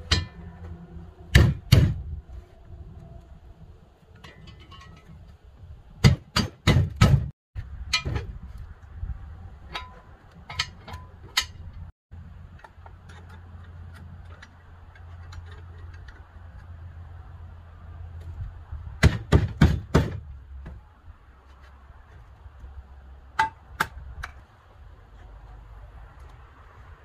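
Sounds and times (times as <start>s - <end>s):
knocks and clanks of steel parts: 0.0s - 2.2s, 4.1s - 5.4s, 6.0s - 8.5s, 9.6s - 16.7s, 19.0s - 20.8s.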